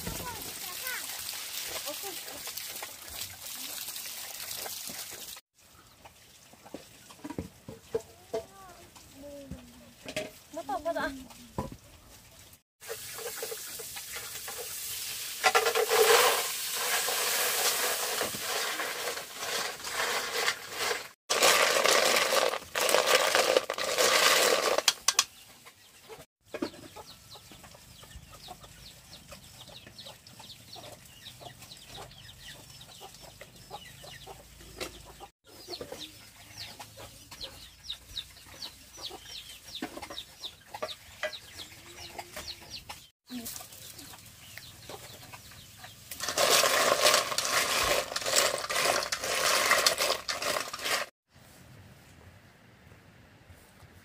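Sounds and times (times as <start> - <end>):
chickens clucking and calling: 25.4 - 43.1, 44.0 - 46.1.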